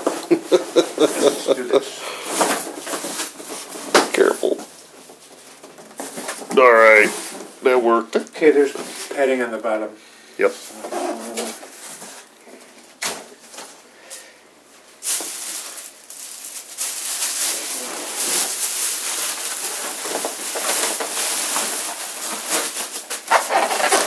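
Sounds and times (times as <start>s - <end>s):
plastic bag crinkling: 0.1s - 7.4s, 15.0s - 24.0s.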